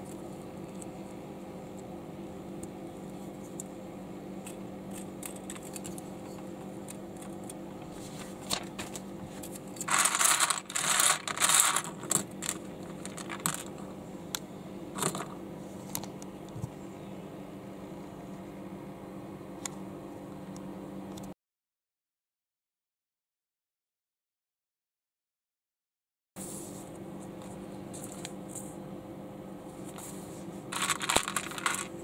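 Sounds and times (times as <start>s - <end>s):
steady low hum: 0.0s - 21.4s, 26.4s - 32.0s
plastic bricks clattering: 9.8s - 13.8s, 30.7s - 32.0s.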